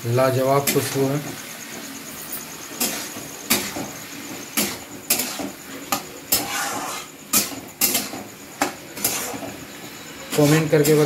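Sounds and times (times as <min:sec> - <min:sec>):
spatula clanking on metal pan: 0:02.8 - 0:09.6.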